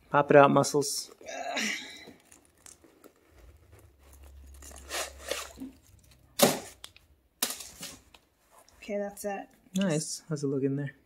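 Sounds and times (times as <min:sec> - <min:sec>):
tissue paper crinkling and rustling: 0:02.2 - 0:06.2.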